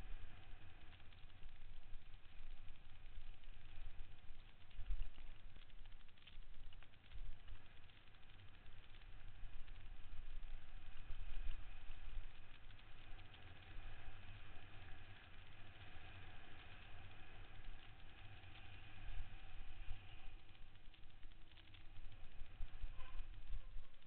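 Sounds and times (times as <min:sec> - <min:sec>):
wind rumbling on microphone: 0:18.7 - 0:24.0.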